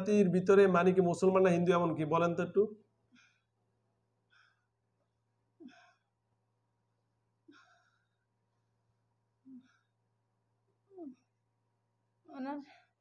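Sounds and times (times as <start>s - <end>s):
faint sighing breaths: 9.4s - 10.0s.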